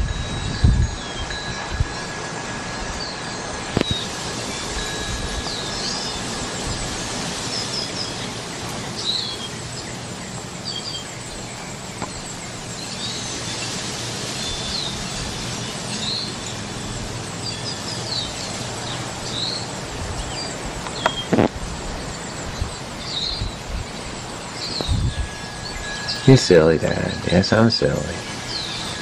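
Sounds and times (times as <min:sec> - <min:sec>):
wind rushing: 0:00.0 - 0:08.9, 0:12.3 - 0:26.7
small birds chirping: 0:00.0 - 0:29.0.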